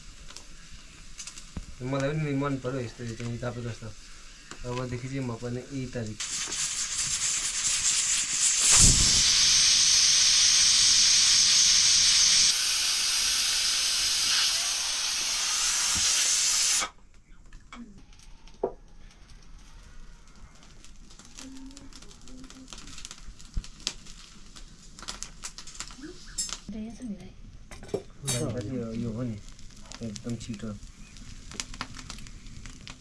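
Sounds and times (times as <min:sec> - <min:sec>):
hot pan hissing: 0:00.0 - 0:17.0, 0:19.6 - 0:33.0.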